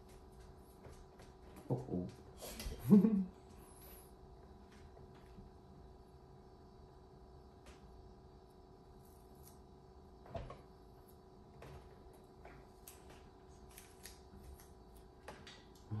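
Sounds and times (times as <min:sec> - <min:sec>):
faint room hum: 0:00.0 - 0:16.0.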